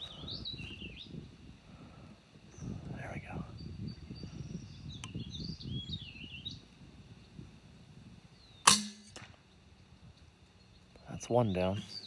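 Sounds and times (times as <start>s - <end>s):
small birds chirping faintly: 0.0s - 8.7s, 9.4s - 12.0s
air rifle shot: 8.6s - 9.4s.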